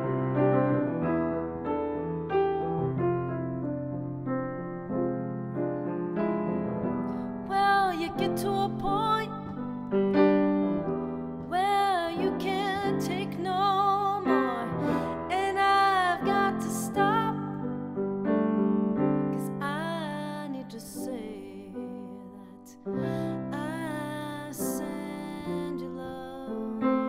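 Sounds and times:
grand piano chords: 0.0s - 27.0s
woman singing with vibrato: 7.5s - 9.5s, 11.5s - 17.6s, 19.4s - 27.0s.

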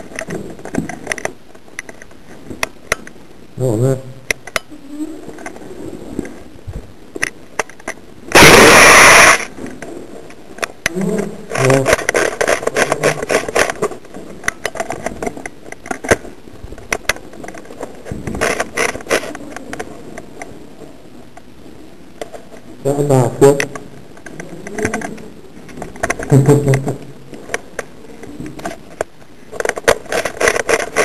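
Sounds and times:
airsoft gunfire: 8.3s - 9.5s
very loud burst of noise: 8.3s - 9.6s.

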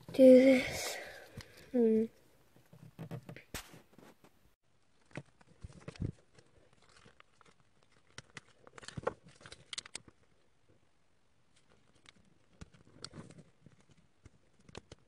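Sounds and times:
plastic toy parts clicking: 6.8s - 10.2s.

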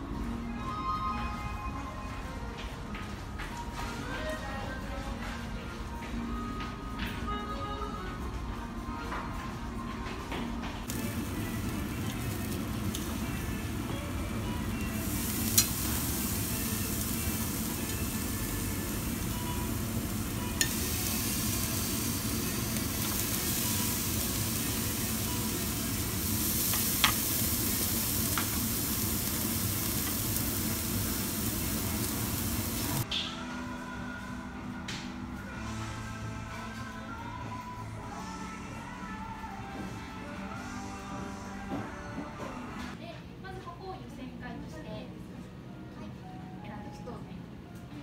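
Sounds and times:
meat sizzling on a grill: 10.9s - 33.0s
tongs clicking against grill: 15.2s - 17.1s, 26.5s - 27.4s.

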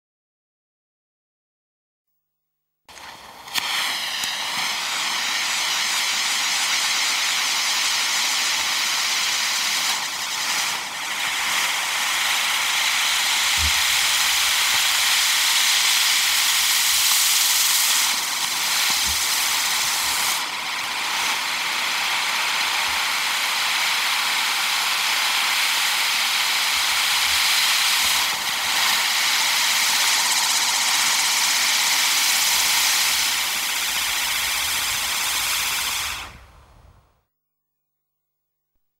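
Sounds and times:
firework sparks hissing: 2.9s - 37.3s.

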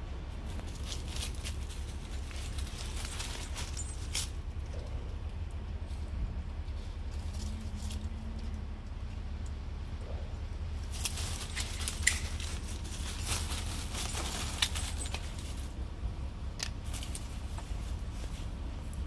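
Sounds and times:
steady low rumble: 0.0s - 19.0s
dry leaves crunching underfoot: 0.3s - 4.6s, 10.7s - 19.0s.

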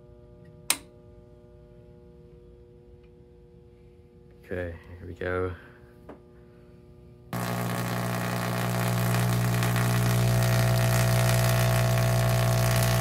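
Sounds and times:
tesla coil buzzing and crackling: 7.4s - 13.0s.

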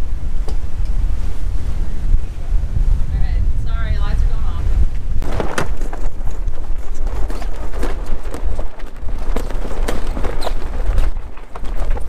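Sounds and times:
wind buffeting microphone: 0.0s - 12.0s
knocks and clatter on deck: 5.2s - 12.0s.

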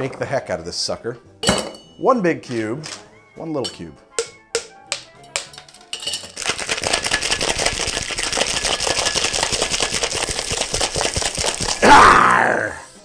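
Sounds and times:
ice cubes clinking into metal tin: 4.6s - 11.8s
ice rattling in shaken cocktail shaker: 5.3s - 11.9s.

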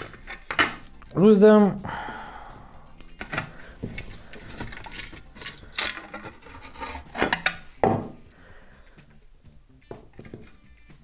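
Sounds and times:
shroud rubbing and scraping: 3.2s - 7.8s
parts clicking and knocking: 3.2s - 9.1s.

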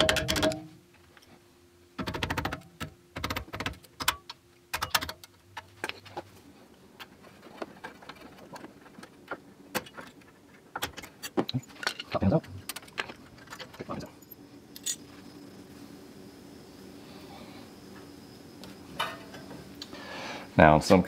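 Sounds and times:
hammer tapping metal punch: 0.0s - 0.7s.

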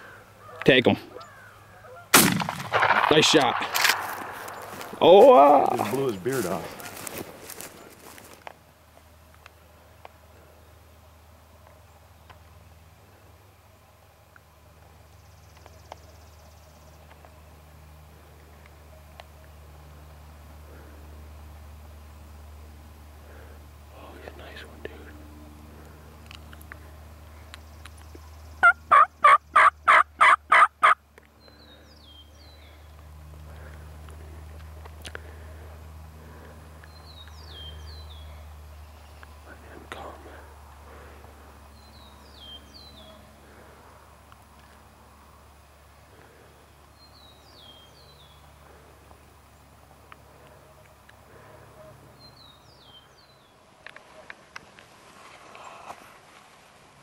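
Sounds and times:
songbird singing: 0.0s - 2.1s, 2.9s - 11.0s, 11.6s - 54.4s
wild turkey yelping: 0.0s - 2.2s, 28.6s - 31.0s
rustle: 0.0s - 57.0s.

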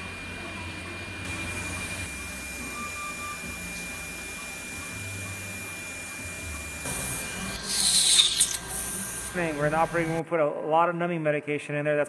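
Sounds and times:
steady high thin tone: 1.3s - 10.2s
even hiss: 6.9s - 10.2s.

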